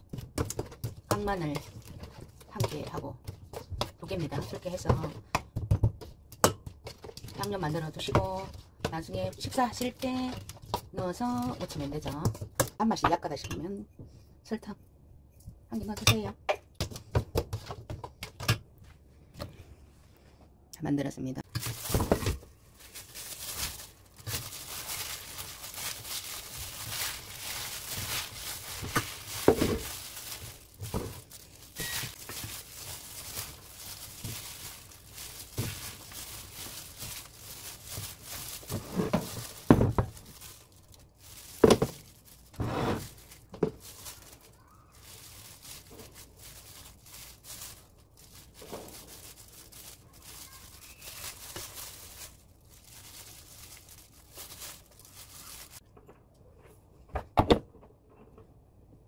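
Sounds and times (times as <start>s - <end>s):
glove and leaves crinkling: 21.4s - 55.8s.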